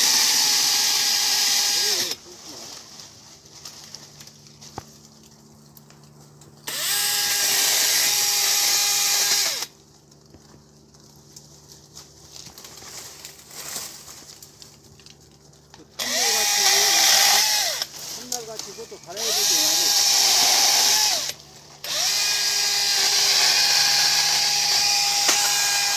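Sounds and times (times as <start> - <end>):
electric chainsaw cutting branch: 0.0 - 2.4, 6.6 - 9.8, 16.0 - 25.9.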